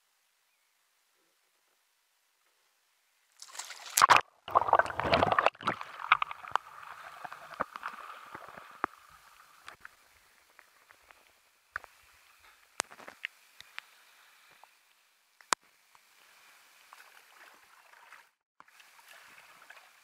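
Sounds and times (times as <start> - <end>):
water streaming and dripping: 3.3 - 14.7, 15.3 - 20.0
loud water splash: 3.4 - 8.8.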